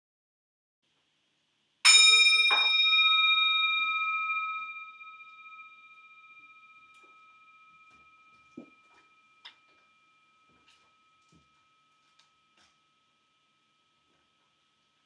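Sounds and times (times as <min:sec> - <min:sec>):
bell ringing: 0:01.9 - 0:13.1.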